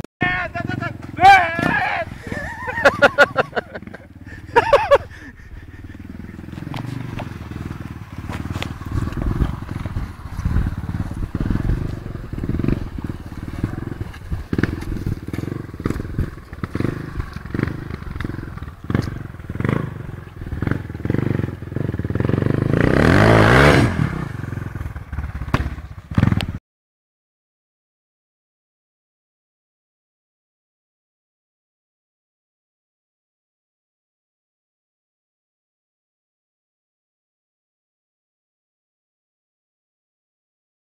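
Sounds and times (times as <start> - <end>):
dirt bike engine revving: 0.2 - 26.6.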